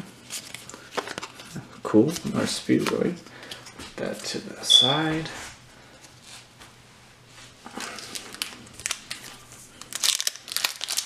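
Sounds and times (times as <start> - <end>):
foil wrapper crinkling and tearing: 7.8 - 11.0.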